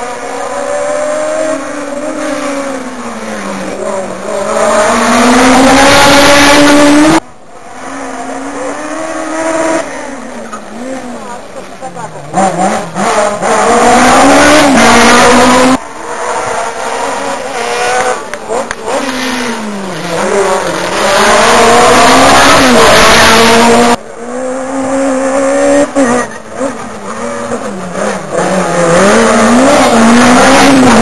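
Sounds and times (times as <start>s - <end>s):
rally cars revving past: 0.0s - 31.0s.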